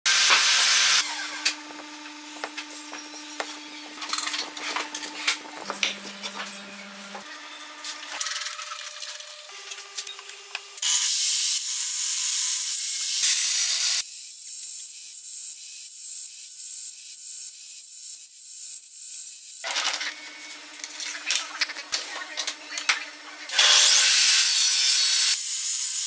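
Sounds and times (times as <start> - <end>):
table saw cutting wood: 0.1 - 14.0, 23.1 - 26.0.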